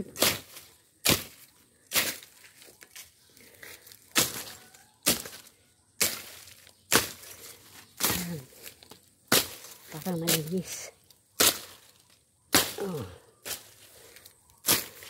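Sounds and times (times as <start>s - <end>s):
knife hacking through brush: 0.1s - 2.4s, 4.0s - 10.8s, 11.4s - 13.9s, 14.6s - 15.0s.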